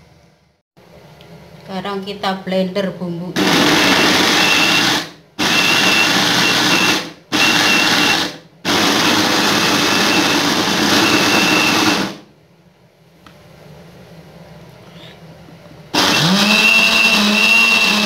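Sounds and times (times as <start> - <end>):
electric blender grinding: 3.4 - 12.2, 15.9 - 18.0.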